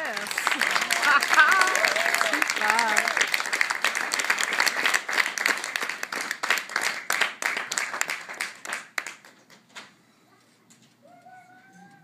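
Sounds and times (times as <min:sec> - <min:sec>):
audience applause: 0:00.0 - 0:09.5.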